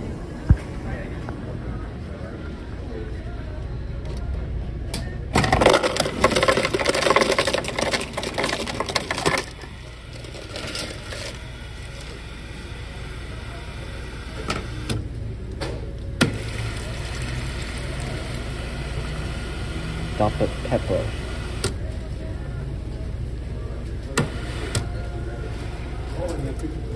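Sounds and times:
ice cubes clattering into cup: 0:05.4 - 0:11.4.

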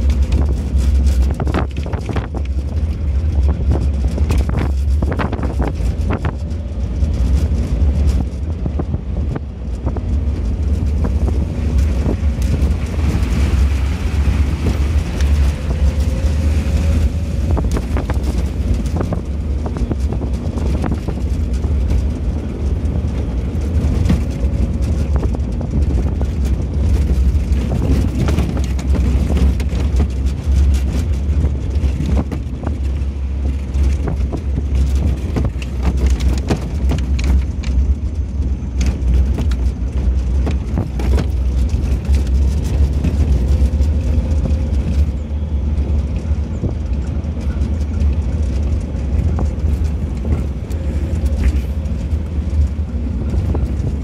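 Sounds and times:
knocks and rattles over bumps: 0:00.0 - 0:54.0
vehicle rumbling on dirt road: 0:00.0 - 0:54.0
wind buffeting microphone: 0:00.0 - 0:54.0.

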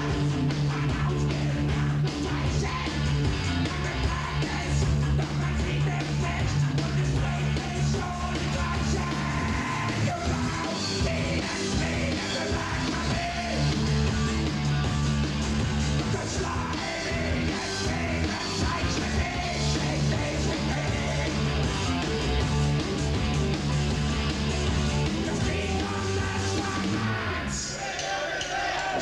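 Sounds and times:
punk rock band playing: 0:00.0 - 0:27.7
singer shouting vocals: 0:03.6 - 0:13.7, 0:16.0 - 0:21.4.

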